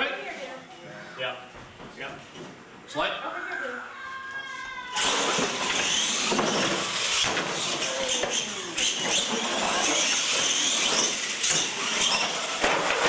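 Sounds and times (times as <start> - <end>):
toy truck motors whining: 4.6 - 13.0.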